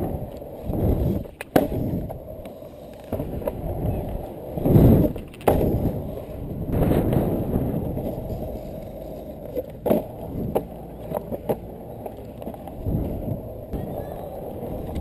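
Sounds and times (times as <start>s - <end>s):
board wheels rumbling on concrete: 0.0s - 15.0s.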